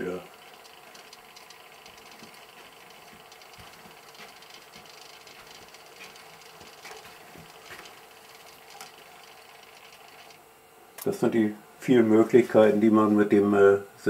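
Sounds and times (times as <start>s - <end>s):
servo motor humming: 0.0s - 10.4s
soft mechanical clicks: 0.3s - 10.4s.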